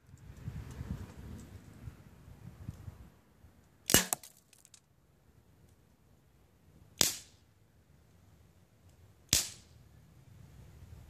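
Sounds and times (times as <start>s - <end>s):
pellet rifle shot: 3.9s - 4.3s, 7.0s - 7.3s, 9.3s - 9.6s.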